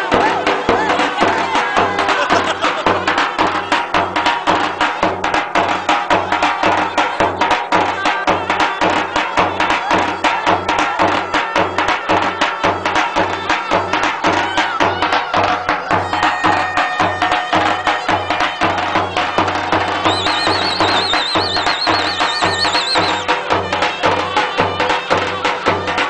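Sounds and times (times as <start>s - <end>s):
fast drumbeat: 0.0s - 26.0s
held melody line: 19.9s - 23.5s.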